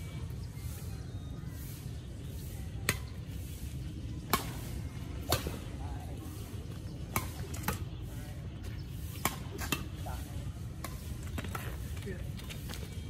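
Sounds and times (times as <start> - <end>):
rackets hitting shuttlecock: 4.2 - 5.7, 7.0 - 7.9.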